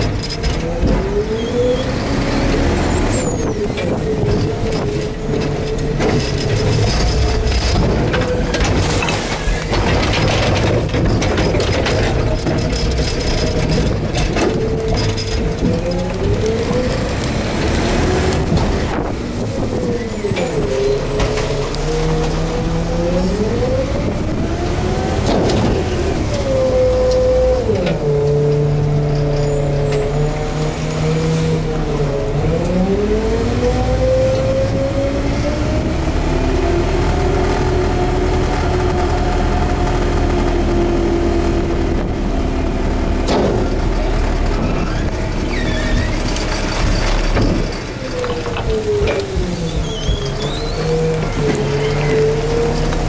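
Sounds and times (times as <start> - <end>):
garbage truck engine: 0.0 - 53.0
hydraulic packer whine: 0.0 - 53.0
wind buffeting microphone: 3.0 - 27.7.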